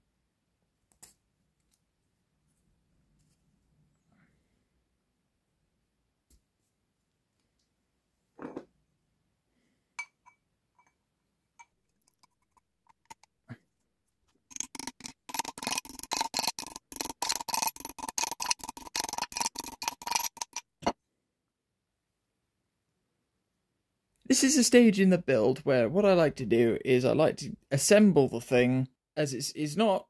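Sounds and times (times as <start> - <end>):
metal parts clicking and rattling: 12.0 - 13.3, 14.5 - 20.6.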